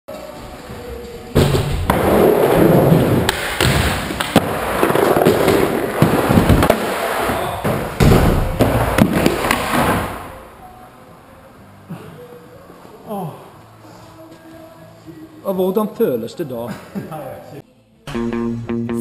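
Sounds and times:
skateboard wheels rolling on wood: 0:00.4 - 0:10.3
skateboard clacks and thuds: 0:01.4 - 0:10.2.

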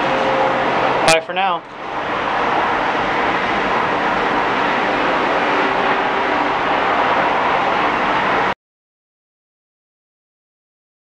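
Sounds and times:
loud steady rushing noise: 0:00.0 - 0:08.6.

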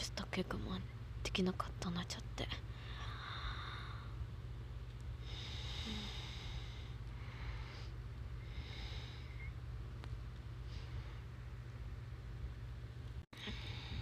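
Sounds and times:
steady low hum: 0:00.0 - 0:14.0
person breathing close to microphone: 0:05.2 - 0:09.5, 0:13.4 - 0:14.0.

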